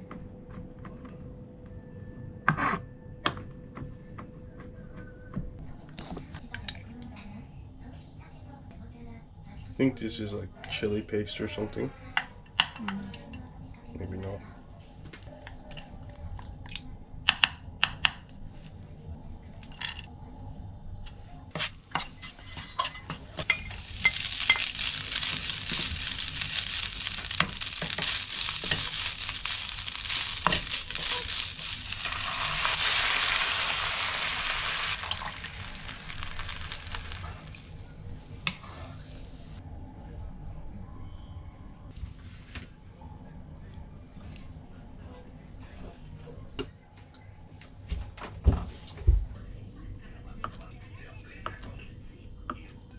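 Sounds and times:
meat sizzling in hot oil: 0:23.4 - 0:37.8.

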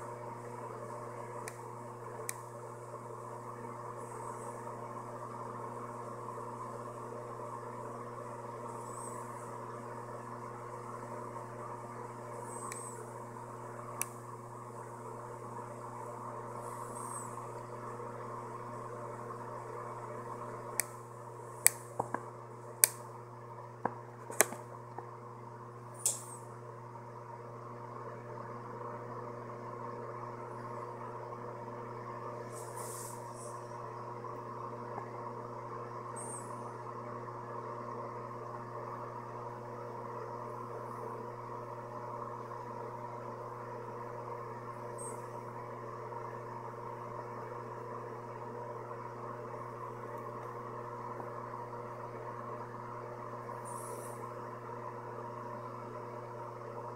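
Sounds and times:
steady hum: 0:00.0 - 0:56.9
even hiss: 0:32.5 - 0:33.6.

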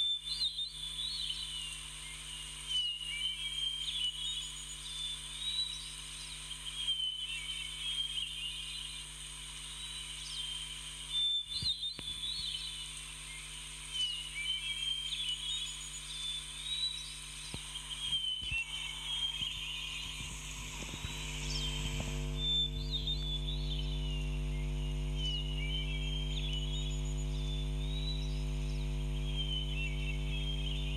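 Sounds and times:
birds chirping: 0:11.4 - 0:30.9
low hum: 0:17.4 - 0:30.9.

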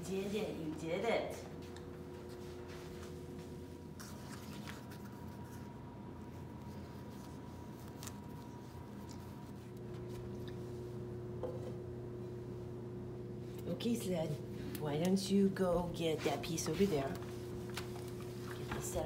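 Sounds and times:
background hum: 0:00.0 - 0:19.0.

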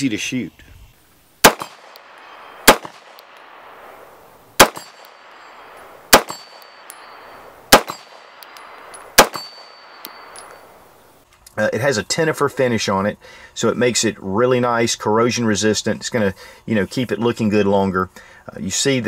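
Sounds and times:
pistol shots: 0:01.4 - 0:10.5
high ring of steel target: 0:04.6 - 0:10.9.

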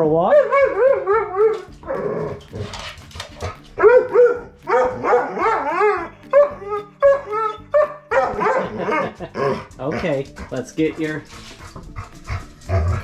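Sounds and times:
dog yowl-barking and whining: 0:03.8 - 0:08.8.

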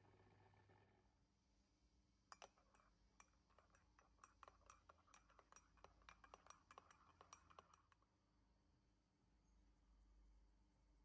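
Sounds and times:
teaspoon clinking in ceramic mug: 0:02.3 - 0:08.1.

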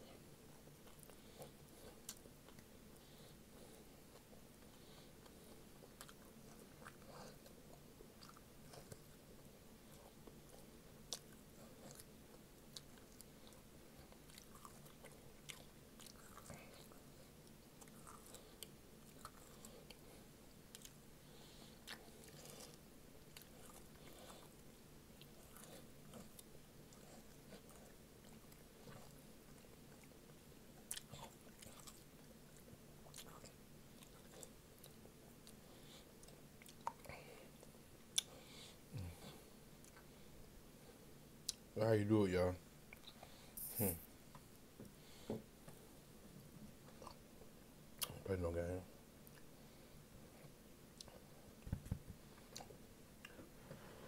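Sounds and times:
man chewing meat: 0:00.0 - 0:41.7, 0:42.8 - 0:43.7, 0:44.3 - 0:48.2, 0:49.2 - 0:54.0
faint steady hum: 0:00.0 - 0:54.0.

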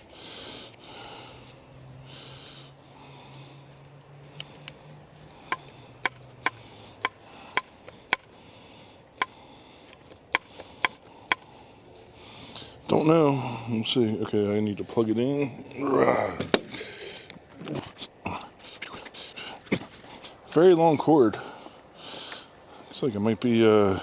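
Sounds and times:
person sniffing and breathing: 0:00.0 - 0:12.9, 0:18.4 - 0:20.4
sharp metallic clicks and taps: 0:04.4 - 0:04.8, 0:05.5 - 0:08.4, 0:09.2 - 0:11.5.

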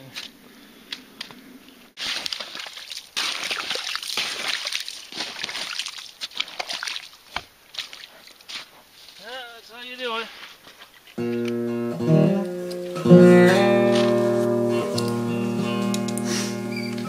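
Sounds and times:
slush and ice sloshing in water: 0:02.0 - 0:08.7.

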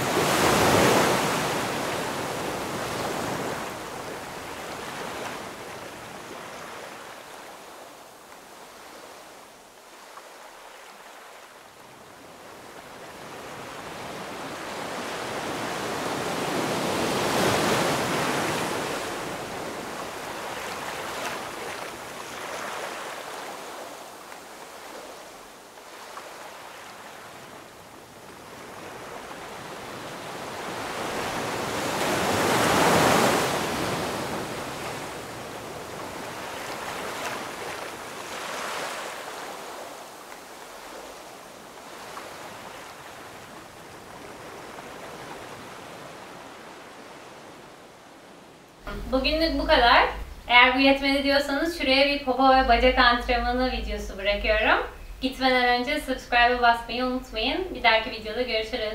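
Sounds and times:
ocean waves hissing: 0:48.9 - 0:58.8.

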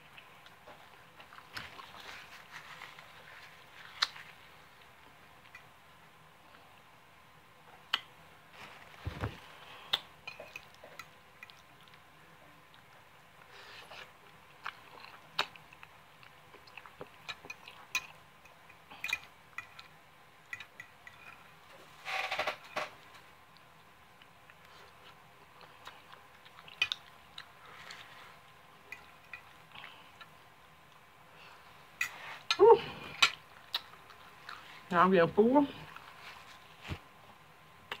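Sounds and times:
person chewing noodles: 0:00.0 - 0:05.6, 0:09.6 - 0:21.6, 0:23.5 - 0:31.6, 0:32.2 - 0:34.9, 0:35.8 - 0:36.8.

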